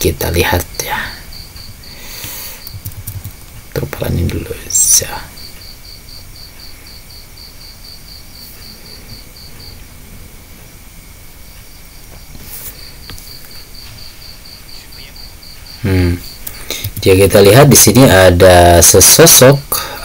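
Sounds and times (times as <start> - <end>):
high-pitched pulsing chirps: 0.0 - 3.6, 12.8 - 18.3
faint hiss: 0.0 - 20.0.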